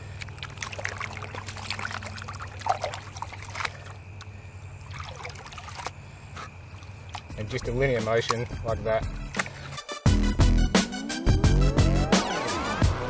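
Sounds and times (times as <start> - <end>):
water sloshing and splashing: 0.0 - 9.9.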